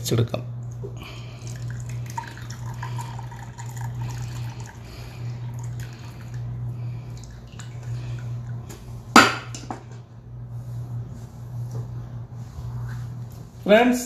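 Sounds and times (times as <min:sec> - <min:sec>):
low hum: 0:00.0 - 0:13.6
tea trickling through strainer: 0:01.1 - 0:08.6.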